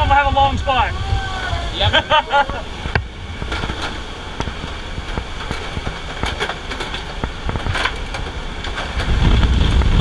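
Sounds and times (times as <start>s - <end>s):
wind noise: 0.0s - 10.0s
knocks and rustling of harnesses: 3.4s - 10.0s.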